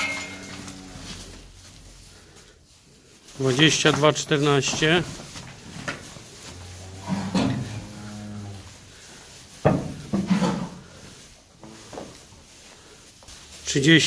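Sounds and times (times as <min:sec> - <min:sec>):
cow mooing: 0:00.0 - 0:01.4, 0:06.5 - 0:08.8.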